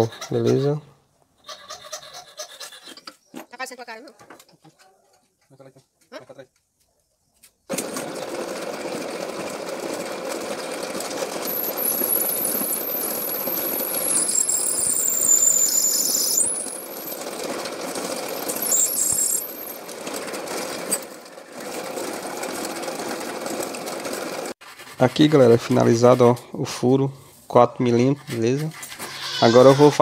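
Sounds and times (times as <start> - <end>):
drill press running: 7.7 - 24.6
drill bit squealing in metal: 11.5 - 17.3, 18.2 - 19.9, 29.0 - 30.0.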